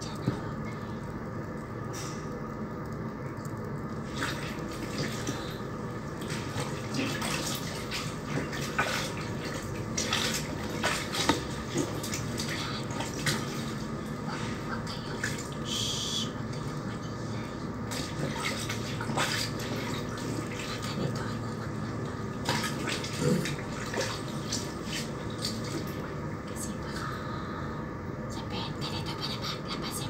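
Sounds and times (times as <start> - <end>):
water splashing and sloshing: 0.1 - 27.4.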